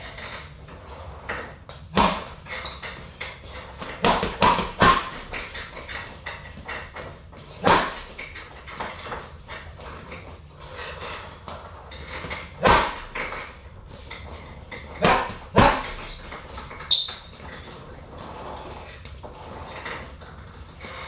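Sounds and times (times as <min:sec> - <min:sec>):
punches hitting heavy bag: 0:01.9 - 0:02.4, 0:03.8 - 0:05.4, 0:07.6 - 0:08.1, 0:12.6 - 0:13.3, 0:15.0 - 0:16.1.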